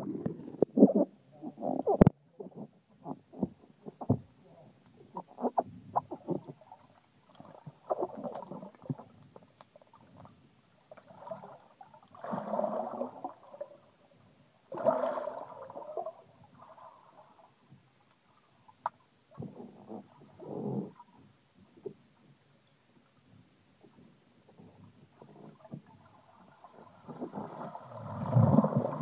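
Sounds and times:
underwater gurgling: 0:00.0 - 0:17.6, 0:18.3 - 0:22.0, 0:24.5 - 0:29.0
muffled knocks and clicks underwater: 0:01.7 - 0:06.6, 0:23.2 - 0:26.0.

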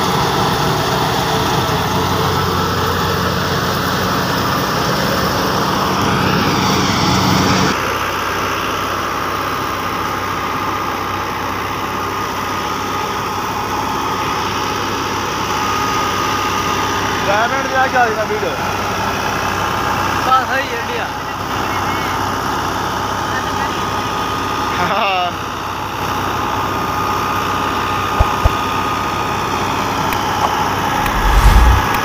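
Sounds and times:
steady high whine: 0:31.0 - 0:32.0.

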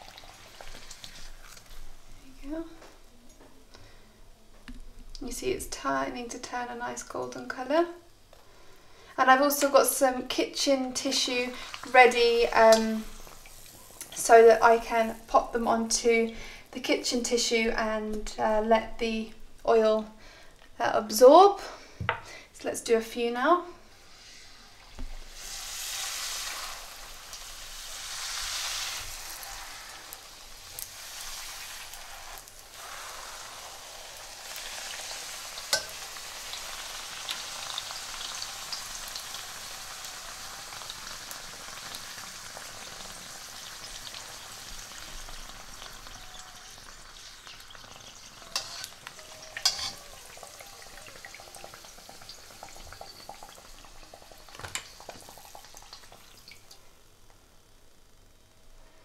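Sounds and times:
dough sizzling in hot oil: 0:00.0 - 0:02.5, 0:09.4 - 0:17.5, 0:23.9 - 0:57.3.

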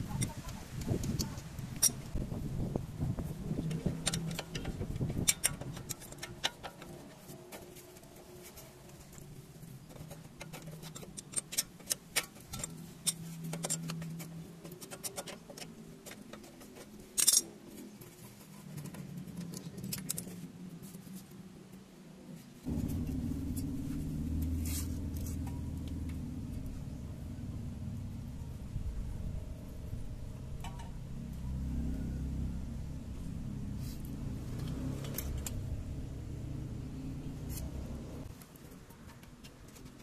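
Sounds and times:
metallic clicks and clinks: 0:03.7 - 0:07.0, 0:17.1 - 0:17.6
steady low hum: 0:20.4 - 0:38.3.

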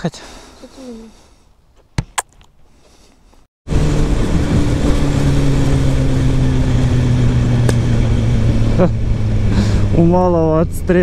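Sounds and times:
motorcycle engine running: 0:03.7 - 0:11.0.

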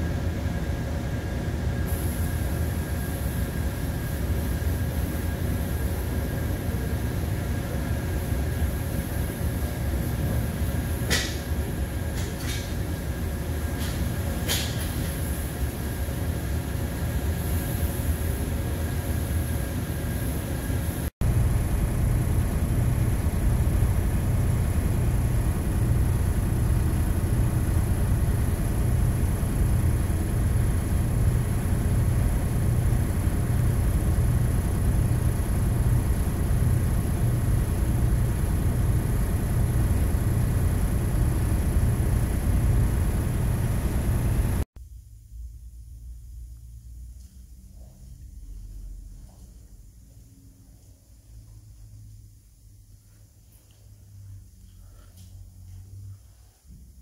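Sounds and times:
ventilation fans running: 0:00.0 - 0:57.0.

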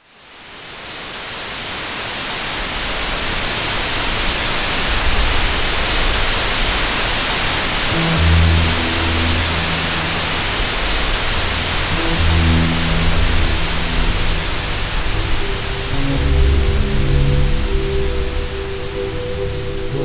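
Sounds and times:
tv static hiss: 0:00.0 - 0:20.0
low music notes: 0:07.4 - 0:20.0.

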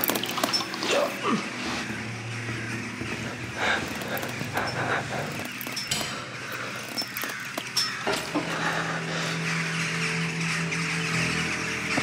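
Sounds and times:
noisy bed: 0:00.0 - 0:09.5
steady low drone: 0:00.0 - 0:12.0.

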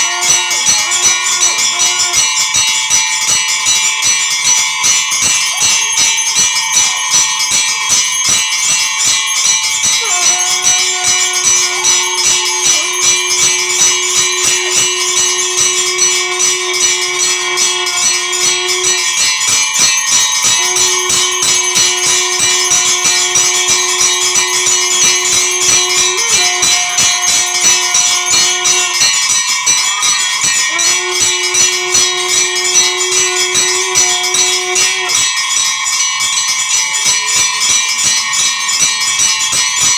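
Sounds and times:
bells ringing rapidly: 0:00.0 - 0:39.9
long low held note: 0:10.0 - 0:19.6, 0:20.2 - 0:29.0, 0:30.7 - 0:35.1.

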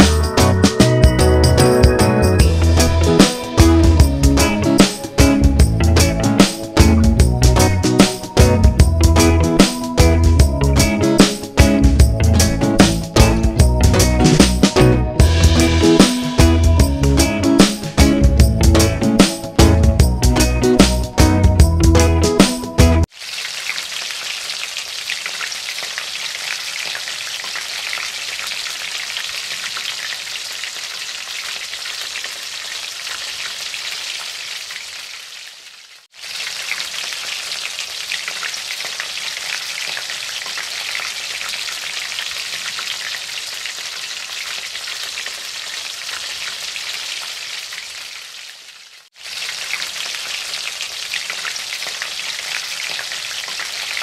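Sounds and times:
fish sizzling in a wok: 0:23.1 - 0:54.0.

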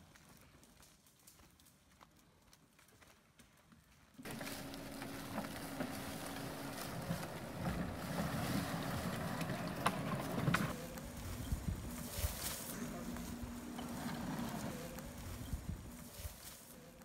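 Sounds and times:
wheels crackling dry leaves: 0:00.0 - 0:17.0
vehicle engine running: 0:04.2 - 0:12.1.

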